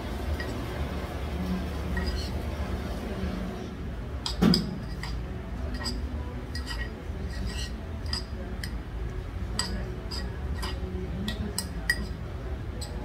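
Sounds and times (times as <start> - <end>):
metal spoon scraping stone bowl: 1.9 - 2.4, 4.8 - 8.7, 9.6 - 12.2.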